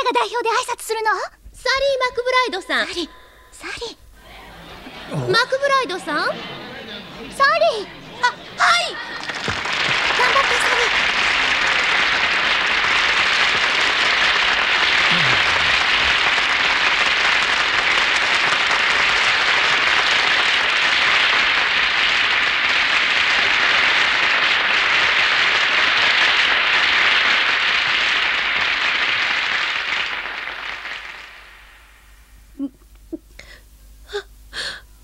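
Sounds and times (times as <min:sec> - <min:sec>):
audience applause: 0:04.3 - 0:05.4, 0:06.3 - 0:32.0.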